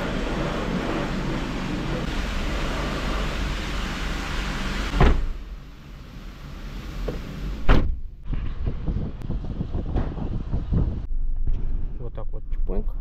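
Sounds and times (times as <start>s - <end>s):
car door slamming: 4.9s - 5.4s, 7.1s - 8.1s.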